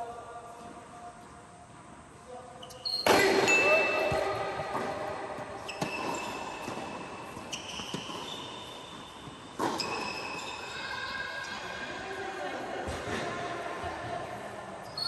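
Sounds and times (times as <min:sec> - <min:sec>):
tennis ball bouncing: 0:03.0 - 0:10.6
racket hitting tennis ball: 0:03.0 - 0:10.9.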